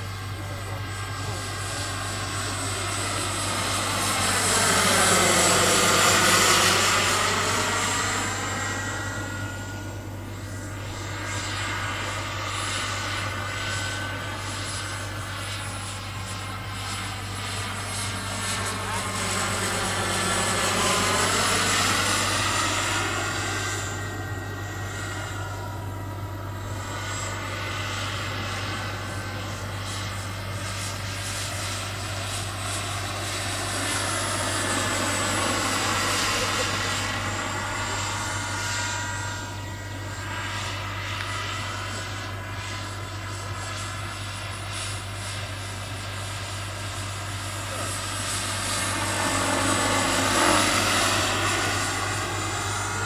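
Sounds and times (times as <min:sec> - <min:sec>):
helicopter rotor: 0:00.0 - 0:53.0
model helicopter turbine whine: 0:00.0 - 0:53.0.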